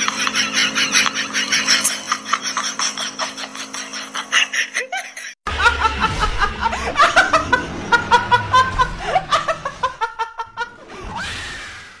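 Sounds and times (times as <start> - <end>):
woman laughing: 0.0 - 10.8.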